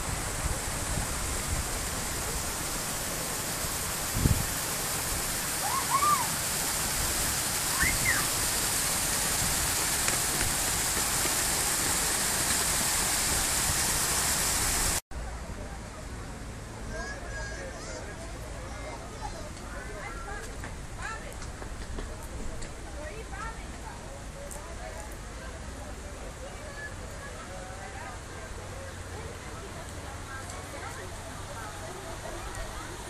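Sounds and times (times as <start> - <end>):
steady rushing noise: 0.0 - 15.0
high chirps: 7.7 - 8.3.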